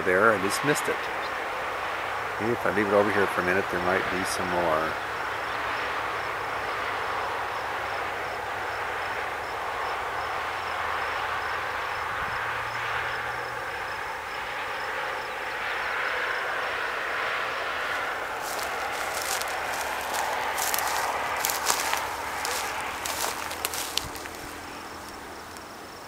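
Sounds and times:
outdoor rushing noise: 0:10.5 - 0:25.6.

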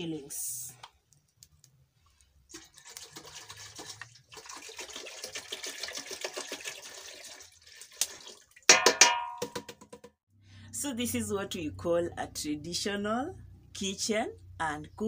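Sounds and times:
milk pouring into metal pot: 0:02.5 - 0:08.9.

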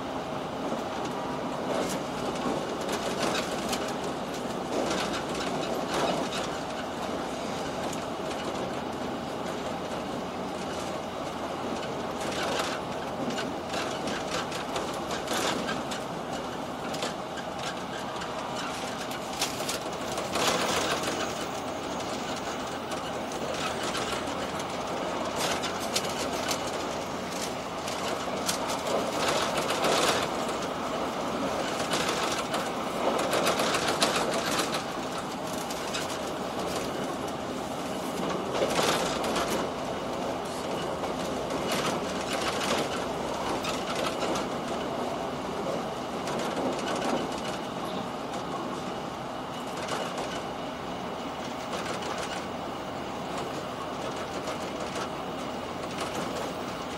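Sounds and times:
train wheels rumbling on rail: 0:00.0 - 0:56.9.

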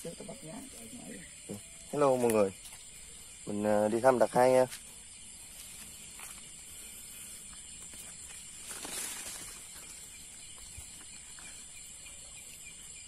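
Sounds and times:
night insects chirring: 0:00.0 - 0:13.0
footsteps on dirt path: 0:04.6 - 0:11.7.

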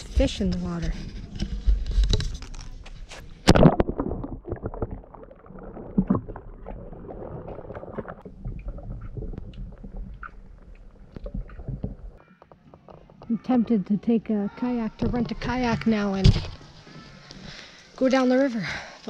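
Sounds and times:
underwater clicks and knocks: 0:00.4 - 0:13.3, 0:15.0 - 0:16.6
splash into water: 0:03.4 - 0:08.2.

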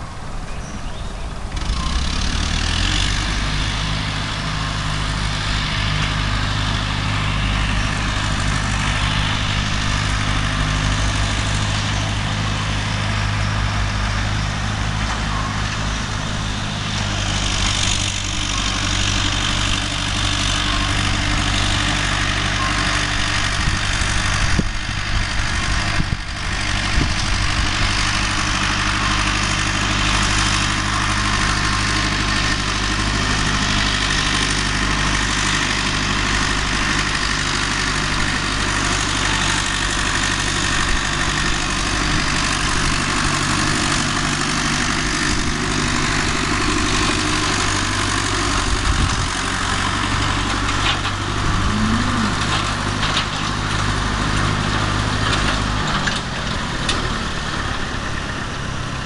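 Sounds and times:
tractor engine running: 0:00.0 - 0:59.0.

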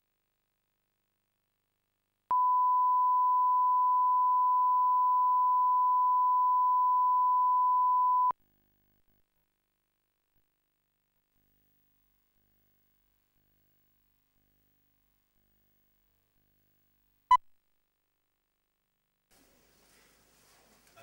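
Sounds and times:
steady reference tone: 0:02.3 - 0:08.3.

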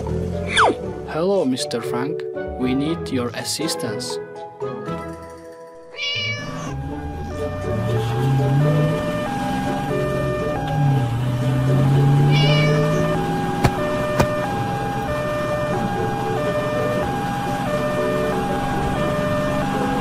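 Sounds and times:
cat meowing: 0:05.9 - 0:06.8, 0:12.2 - 0:13.1
fire truck hi-lo siren: 0:06.1 - 0:20.0
low engine drone: 0:06.6 - 0:20.0.

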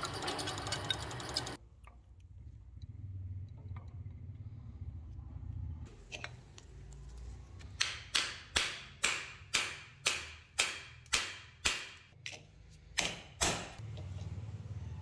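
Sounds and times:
hammer striking steel punch: 0:07.8 - 0:12.1.

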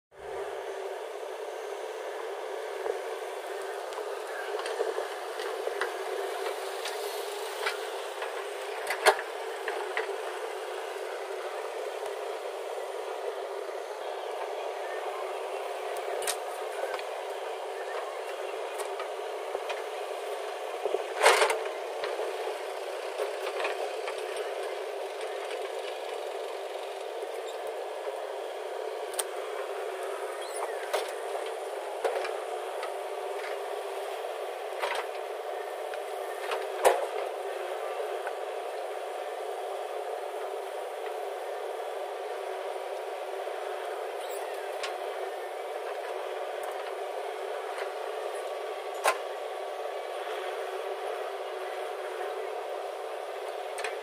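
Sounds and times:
backhoe diesel engine running: 0:00.2 - 0:54.0.

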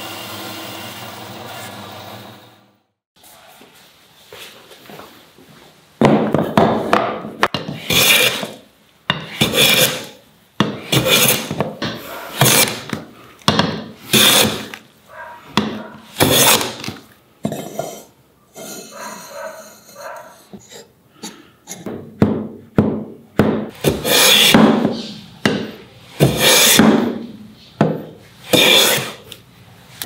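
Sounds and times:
bench plane shaving wood: 0:00.0 - 0:02.5, 0:07.8 - 0:08.6, 0:09.3 - 0:10.1, 0:10.9 - 0:11.6, 0:12.3 - 0:12.9, 0:14.1 - 0:14.8, 0:16.1 - 0:16.8, 0:23.9 - 0:24.6, 0:26.2 - 0:26.8, 0:28.5 - 0:29.2.

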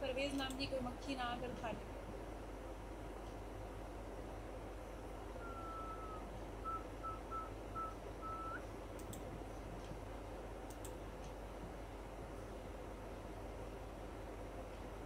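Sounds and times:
steady low hum: 0:00.0 - 0:15.0
faint clicks: 0:09.0 - 0:10.0, 0:10.6 - 0:11.4.

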